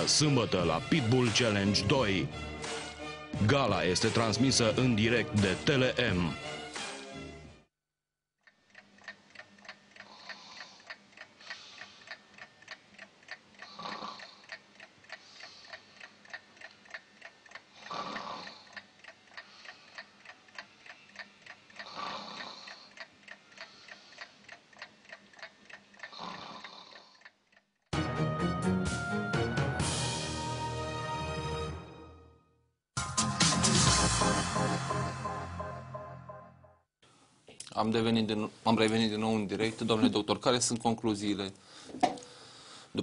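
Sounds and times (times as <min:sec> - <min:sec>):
alarm clock ticking: 0:08.4 - 0:27.7
slow breathing: 0:10.0 - 0:12.4, 0:13.6 - 0:16.2, 0:17.6 - 0:24.6, 0:41.6 - 0:43.0
loud music: 0:28.0 - 0:32.2, 0:33.0 - 0:36.6.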